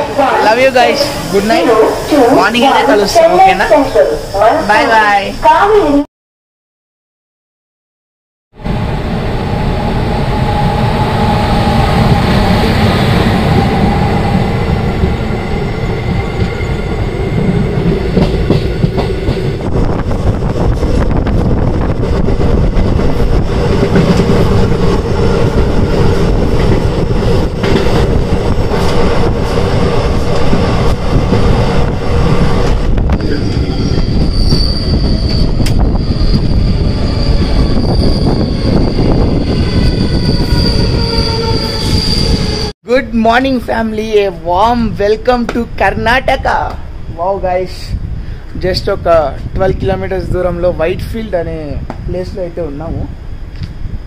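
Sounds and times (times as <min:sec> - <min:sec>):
train wheels rumbling on rail: 0:08.6 - 0:42.7
wheel squeal: 0:33.1 - 0:42.7.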